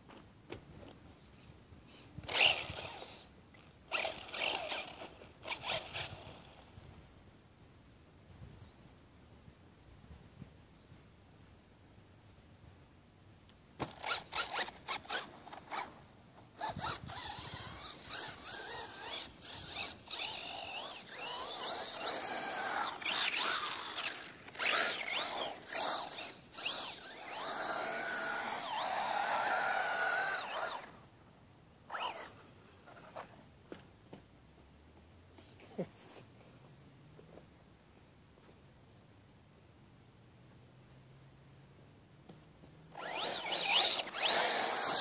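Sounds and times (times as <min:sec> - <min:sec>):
electric toy car motor whining: 0:02.2 - 0:06.8, 0:13.8 - 0:31.0, 0:31.9 - 0:33.4, 0:42.9 - 0:45.0.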